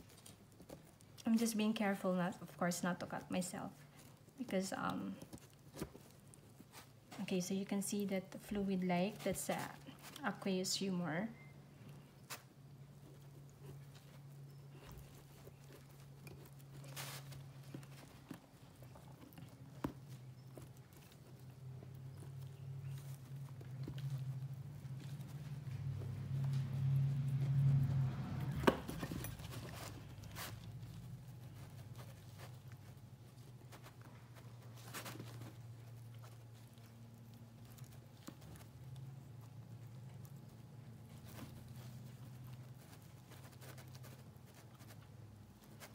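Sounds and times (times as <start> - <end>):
rustle: 11.8 - 45.9
low hum: 12.8 - 42.6.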